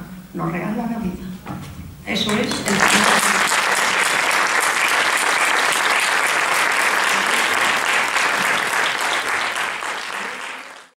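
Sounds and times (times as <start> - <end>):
audience applauding: 2.3 - 11.0.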